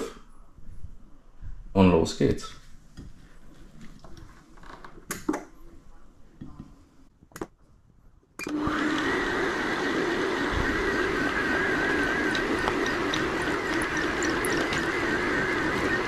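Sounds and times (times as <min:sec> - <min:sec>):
mixer motor running: 0:08.5 - 0:16.0.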